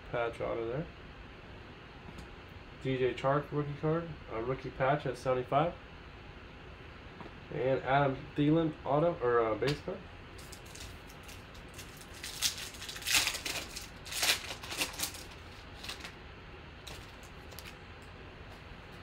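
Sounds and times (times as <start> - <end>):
foil wrapper crinkling and tearing: 10.4 - 16.2, 16.8 - 17.8.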